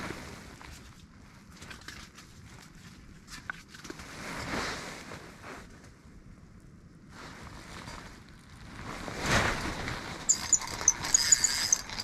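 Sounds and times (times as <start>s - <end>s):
fishing reel squeaking: 10.3s - 12.0s.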